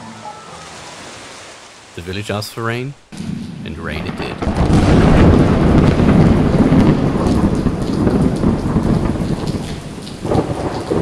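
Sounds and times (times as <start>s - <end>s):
heavy rain pouring: 0.0s - 11.0s
rolling thunder: 3.1s - 11.0s.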